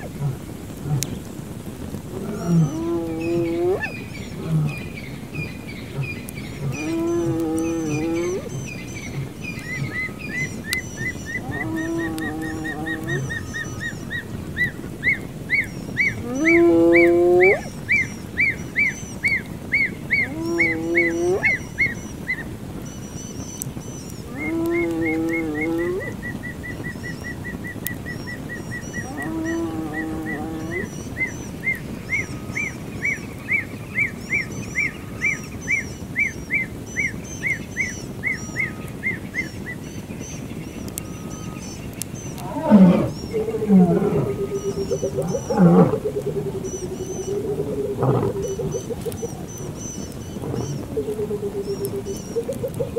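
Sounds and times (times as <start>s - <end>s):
loud low animal call: 2.1s - 4.9s, 5.9s - 13.8s, 16.0s - 17.7s, 20.1s - 21.7s, 24.3s - 26.2s, 29.0s - 31.0s, 42.3s - 52.9s
long low animal call sweeping upward: 2.1s - 17.8s, 19.8s - 21.9s, 24.2s - 26.3s, 28.8s - 31.3s, 42.3s - 52.9s.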